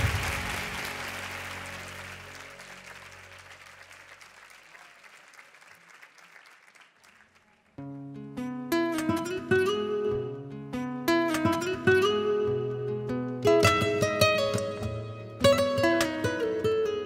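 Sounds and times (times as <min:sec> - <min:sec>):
studio audience applause: 0:00.0 - 0:07.8
acoustic guitar plucked notes: 0:07.8 - 0:17.0.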